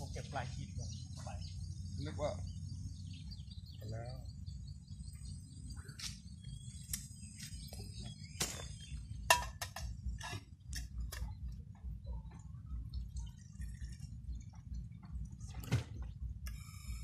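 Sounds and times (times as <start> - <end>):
metal cookpot clinking: 9.3 - 10.4
water trickling into pot: 12.7 - 15.4.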